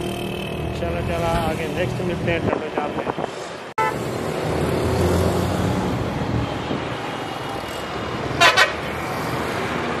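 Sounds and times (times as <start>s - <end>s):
motorcycle and truck engines: 0.0s - 10.0s
vehicle horn toots: 8.4s - 8.8s.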